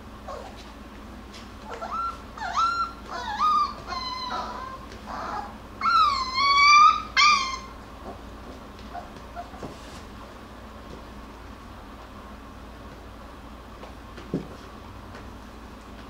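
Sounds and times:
puppies whimpering: 0:00.3 - 0:00.6, 0:01.6 - 0:08.2, 0:08.8 - 0:09.6.

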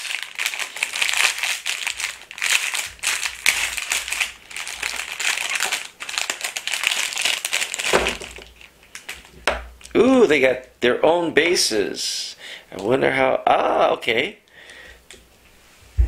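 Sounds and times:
plastic wrapping crinkling: 0:00.0 - 0:10.4.

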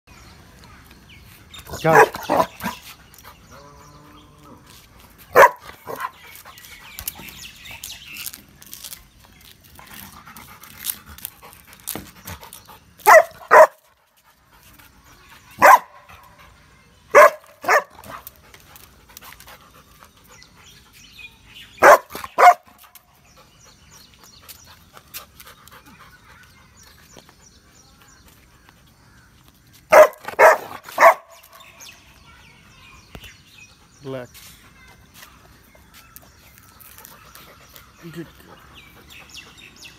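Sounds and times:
dog barking: 0:01.8 - 0:02.8, 0:05.3 - 0:06.1, 0:13.0 - 0:13.8, 0:15.6 - 0:16.0, 0:17.1 - 0:18.0, 0:21.8 - 0:22.6, 0:29.9 - 0:31.4.

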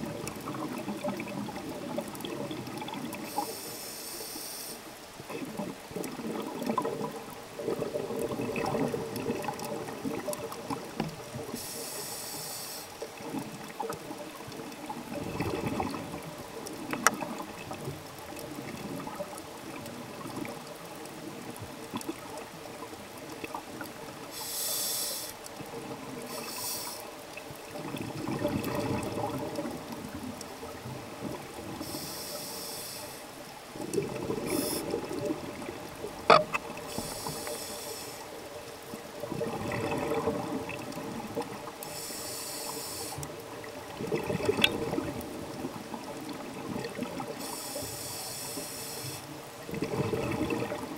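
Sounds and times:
regulator inhalation hiss: 0:03.2 - 0:04.9, 0:11.5 - 0:13.0, 0:24.3 - 0:25.5, 0:26.3 - 0:27.1, 0:31.8 - 0:33.3, 0:34.5 - 0:35.0, 0:36.9 - 0:38.4, 0:41.8 - 0:43.2, 0:47.4 - 0:49.4
exhaled bubbles rushing: 0:05.3 - 0:11.6, 0:13.2 - 0:20.7, 0:27.7 - 0:31.8, 0:33.8 - 0:36.9, 0:39.0 - 0:41.7, 0:43.6 - 0:47.4, 0:49.6 - 0:50.9.

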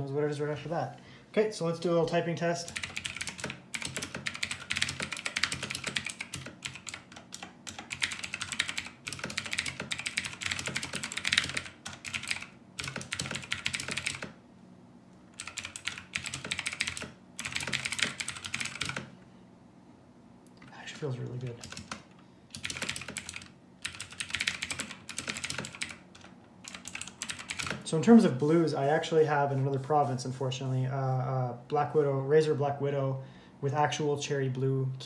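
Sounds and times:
mechanical keyboard typing: 0:02.7 - 0:14.4, 0:15.4 - 0:19.1, 0:21.6 - 0:27.9.

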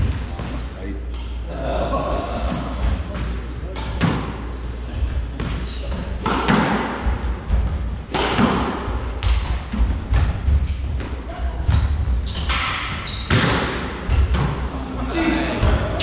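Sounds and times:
squash ball cracking off racquets: 0:06.2 - 0:07.1, 0:08.1 - 0:10.4
shoes squeaking on court: 0:07.5 - 0:13.5.

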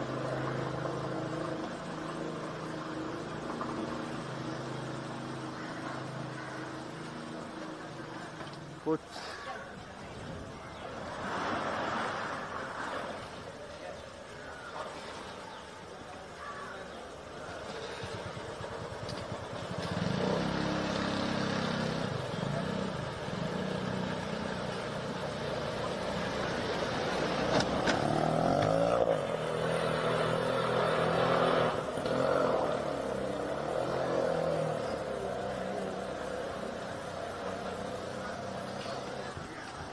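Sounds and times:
churning water: 0:00.0 - 0:39.9
small engine revving: 0:17.6 - 0:39.7.

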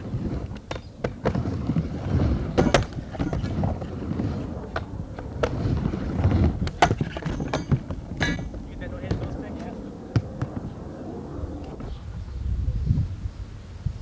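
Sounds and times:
skateboard wheels rolling: 0:00.0 - 0:12.5
skateboard clacking on ramp: 0:02.5 - 0:03.9.

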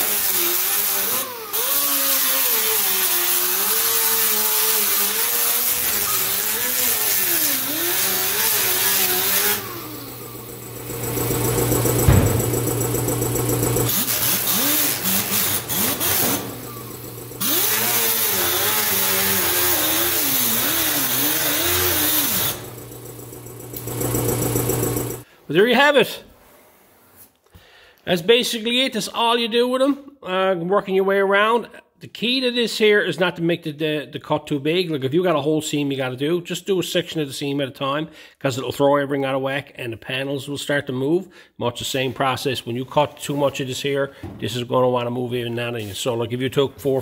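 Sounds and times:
air sander grinding metal: 0:00.0 - 0:23.0.

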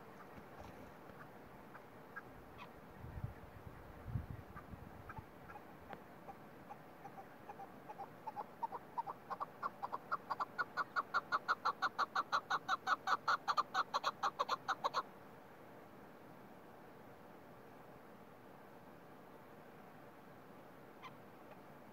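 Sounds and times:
partridge clucking calls: 0:00.0 - 0:03.9, 0:04.5 - 0:15.1.

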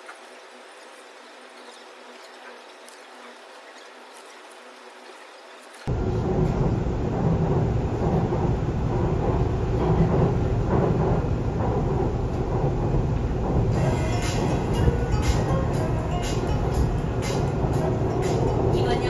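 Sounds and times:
subway train wheels rumbling: 0:05.9 - 0:19.0.

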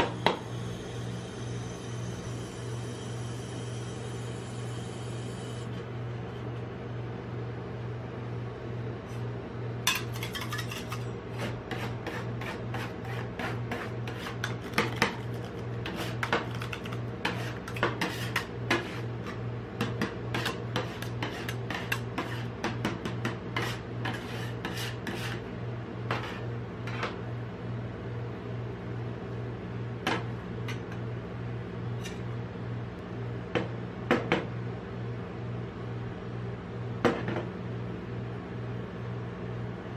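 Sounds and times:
spatulas chopping and scraping metal: 0:09.9 - 0:25.4, 0:26.1 - 0:27.2.

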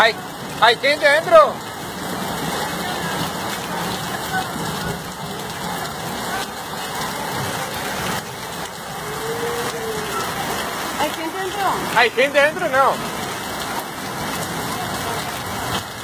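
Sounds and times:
running floodwater: 0:00.0 - 0:16.0
torrential rain on flooded street: 0:00.0 - 0:16.0.

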